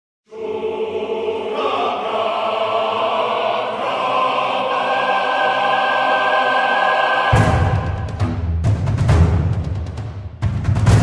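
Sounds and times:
choir singing held chords: 0:00.3 - 0:08.6.

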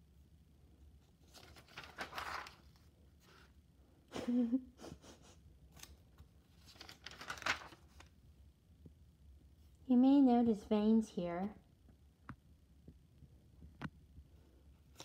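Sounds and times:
notebook pages turning: 0:01.2 - 0:03.4, 0:05.8 - 0:08.1.

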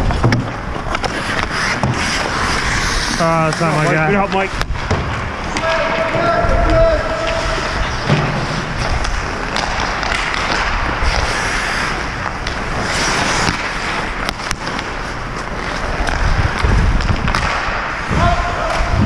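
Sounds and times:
hockey sticks and puck clacking: 0:00.0 - 0:19.0
skates scraping ice: 0:00.0 - 0:19.0
wind on microphone: 0:16.2 - 0:17.4, 0:18.1 - 0:19.0.

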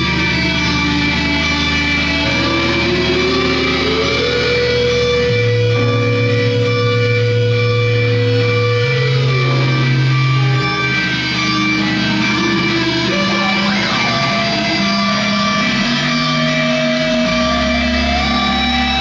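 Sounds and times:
layered electronic drones: 0:00.0 - 0:19.0
high gliding tone: 0:02.2 - 0:16.3.

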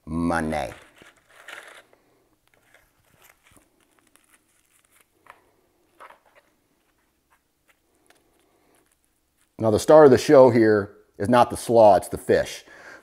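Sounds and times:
faint food rustles and clicks: 0:00.6 - 0:09.6.

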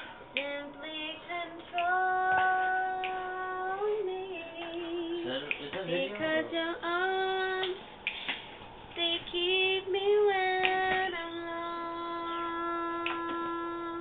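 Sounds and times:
woman singing unaccompanied: 0:00.3 - 0:07.9, 0:08.9 - 0:14.0.

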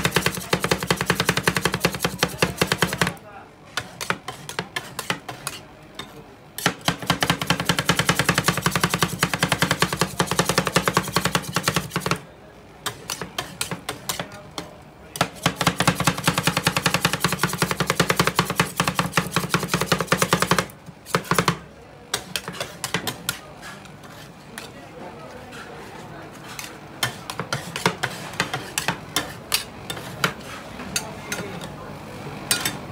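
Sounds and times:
metal spatulas clacking on steel: 0:32.5 - 0:32.8.

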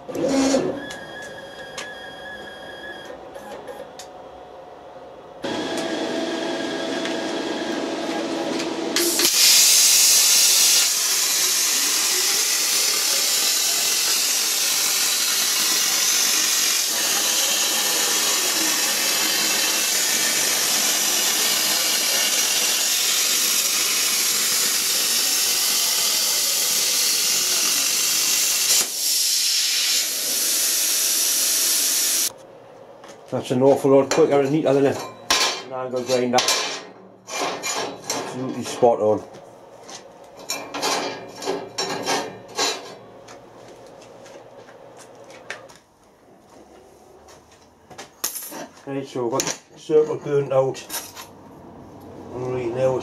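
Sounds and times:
steady machine hum: 0:00.0 - 0:29.0
plasma cutter hissing: 0:09.0 - 0:32.3.

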